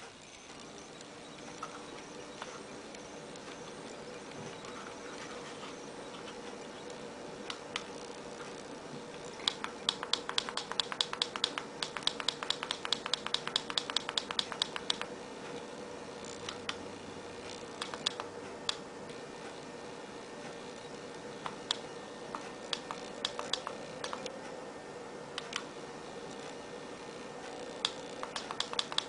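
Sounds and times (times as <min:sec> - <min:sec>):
push-button clicking: 0:09.4 - 0:15.1, 0:27.8 - 0:29.0.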